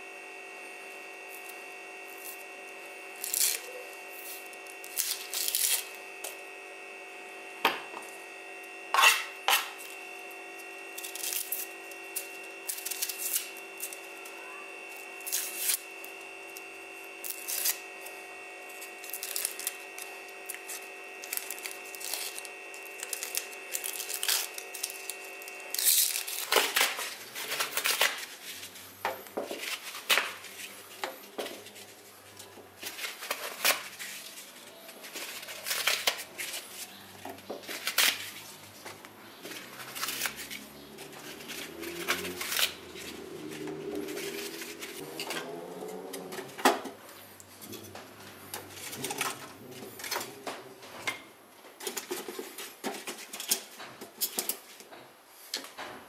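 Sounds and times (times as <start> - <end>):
steady background hum: 0.0 - 56.0
onion skins crackling and tearing: 3.1 - 6.4, 10.6 - 14.3, 14.9 - 28.8, 29.6 - 46.5.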